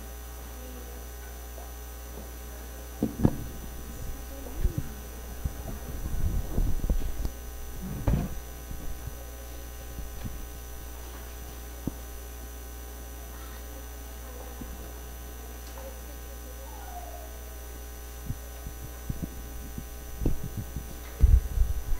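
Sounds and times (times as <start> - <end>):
electrical mains hum: 0.0 - 21.9
thumps and knocks: 3.0 - 3.6, 5.5 - 9.0.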